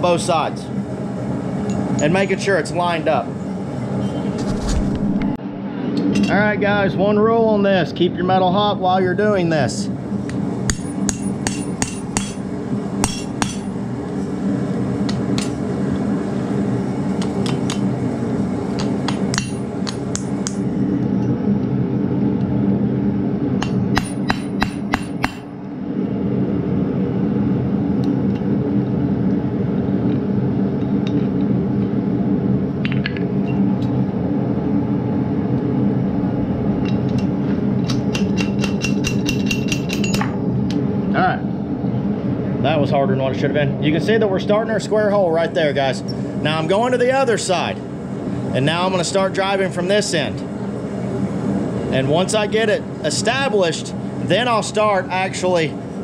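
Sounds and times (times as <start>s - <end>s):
low hum: 0.0s - 56.0s
hammer striking metal: 10.7s - 12.4s, 13.0s - 13.7s, 18.8s - 20.6s, 23.6s - 25.5s, 37.8s - 40.4s.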